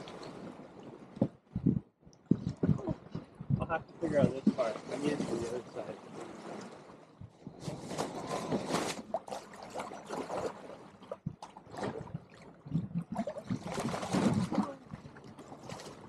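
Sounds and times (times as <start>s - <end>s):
water rushing along boat hull: 0.0s - 16.0s.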